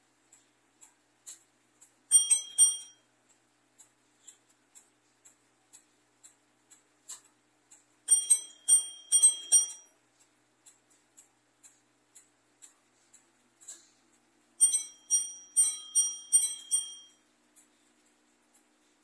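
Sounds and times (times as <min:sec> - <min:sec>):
clock ticking: 0:00.2 - 0:17.8
clock bell strikes: 0:02.1 - 0:03.0, 0:08.1 - 0:09.9, 0:14.6 - 0:17.2.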